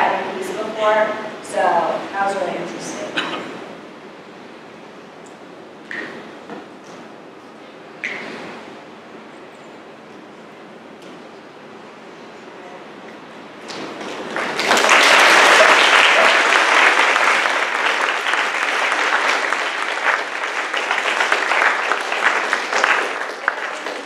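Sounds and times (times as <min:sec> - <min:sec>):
people applauding: 0:13.7 - 0:24.0.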